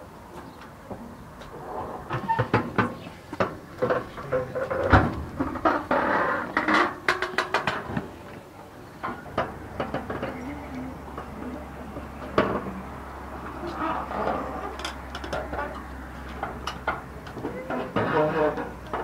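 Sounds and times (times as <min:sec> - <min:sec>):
knocks on metal playground equipment: 0:02.1 - 0:08.0.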